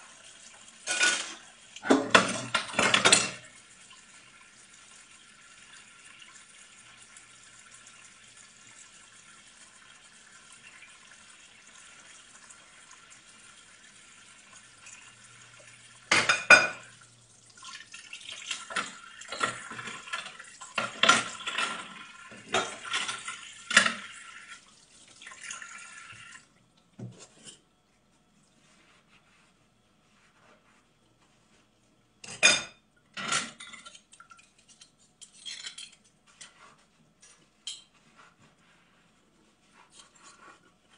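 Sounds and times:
tap water running into sink: 0:00.0 - 0:27.2
dishes clattering and clinking: 0:00.8 - 0:03.6, 0:16.0 - 0:17.0, 0:18.3 - 0:24.2, 0:27.0 - 0:27.7, 0:32.2 - 0:38.2.

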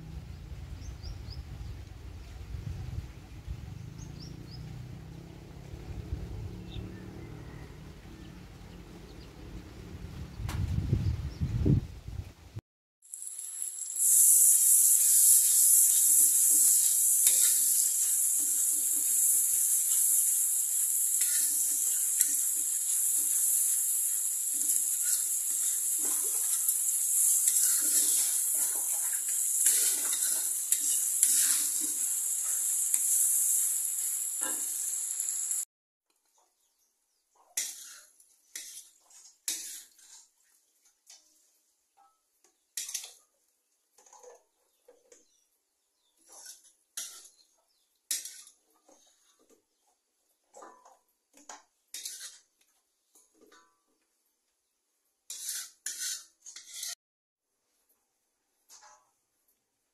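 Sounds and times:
chili paste sizzling in oil: 0:13.0 - 0:35.7, 0:37.6 - 0:41.4, 0:42.6 - 0:43.3, 0:46.1 - 0:49.8, 0:51.5 - 0:52.6, 0:55.2 - 0:57.0
spatula scraping a wok: 0:13.2 - 0:35.7, 0:37.6 - 0:40.4, 0:42.8 - 0:43.2, 0:46.2 - 0:47.5, 0:48.1 - 0:49.6, 0:51.9 - 0:52.6, 0:55.3 - 0:57.0.

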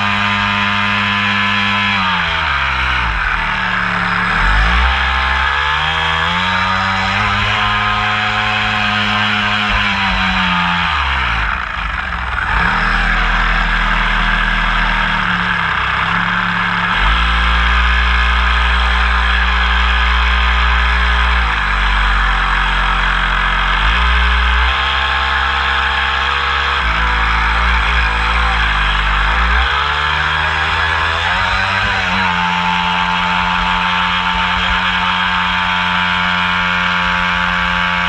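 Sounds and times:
model boat motor running: 0:00.0 - 0:38.0.

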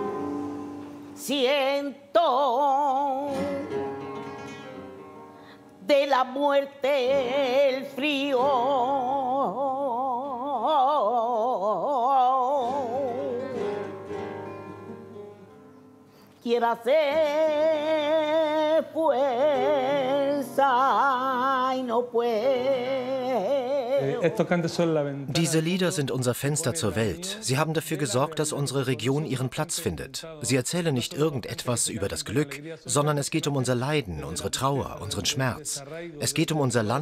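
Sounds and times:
woman singing flamenco: 0:00.0 - 0:15.1, 0:16.4 - 0:24.2
flamenco guitar: 0:00.0 - 0:29.5.

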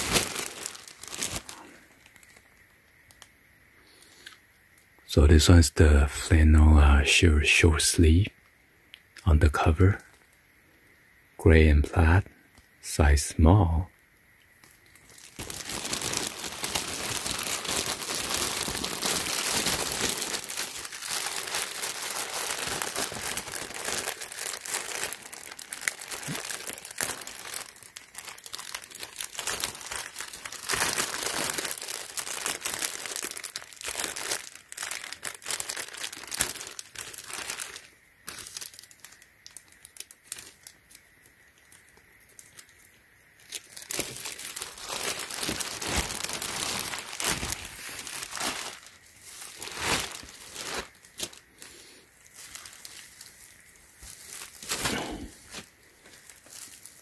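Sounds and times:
plastic bag crinkling: 0:00.0 - 0:03.2, 0:14.6 - 0:41.0, 0:41.6 - 0:57.0.

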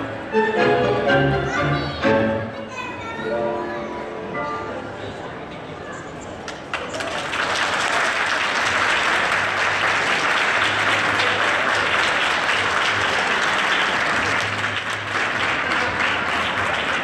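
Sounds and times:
crowd applauding: 0:06.4 - 0:17.0.

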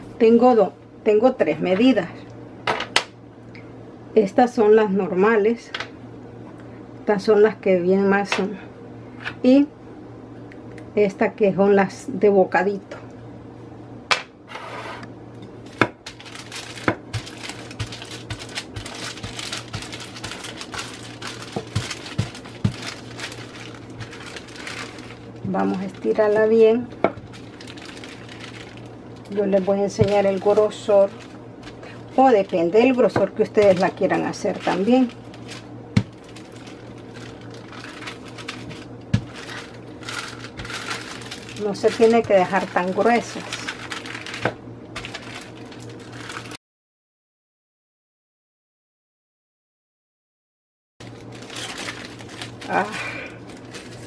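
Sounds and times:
faint steady hum: 0:00.0 - 0:46.6, 0:51.0 - 0:54.0
parchment paper crackling: 0:15.6 - 0:46.6, 0:51.0 - 0:54.0
rolling pin rustling over dough: 0:15.7 - 0:46.5.

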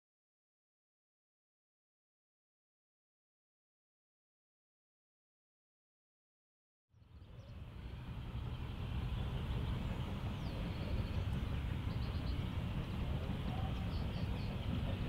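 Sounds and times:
distant steam locomotive rumble: 0:07.0 - 0:15.0.

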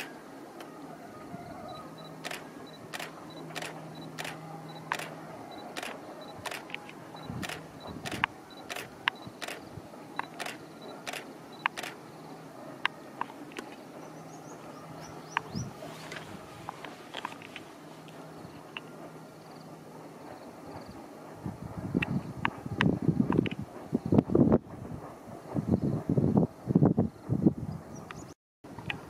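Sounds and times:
faint outdoor ambience: 0:00.0 - 0:29.0
sharp clicks: 0:02.2 - 0:12.0.

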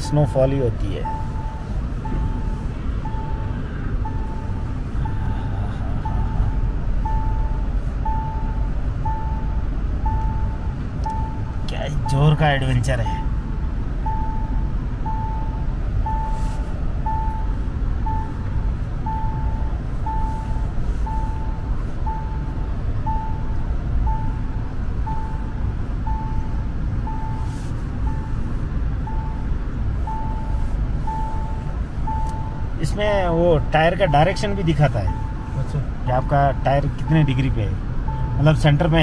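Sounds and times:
engine and tyre rumble: 0:00.0 - 0:39.0
seat-belt reminder chime beeping: 0:00.0 - 0:39.0.

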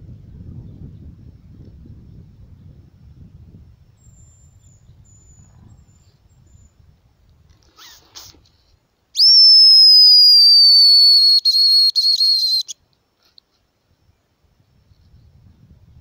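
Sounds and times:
bird call whistle: 0:09.2 - 0:12.8.

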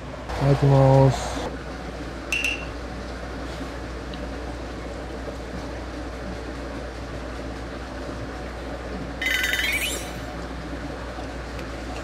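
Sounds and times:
bright ringing sound effect: 0:09.2 - 0:10.3.

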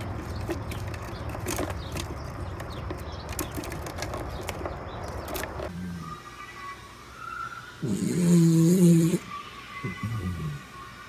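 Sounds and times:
squirrel scrabbling in plastic feeder: 0:00.0 - 0:05.7.

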